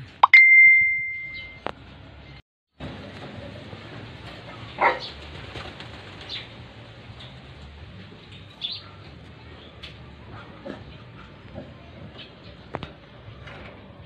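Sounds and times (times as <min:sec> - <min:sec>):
wings fluttering: 0:04.2 - 0:08.6.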